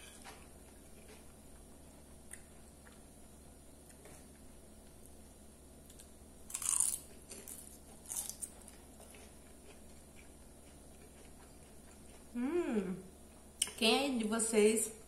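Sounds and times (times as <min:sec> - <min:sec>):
chewing crunches: 0:00.2 - 0:03.1, 0:05.9 - 0:12.4
crisp crunching: 0:06.5 - 0:09.8.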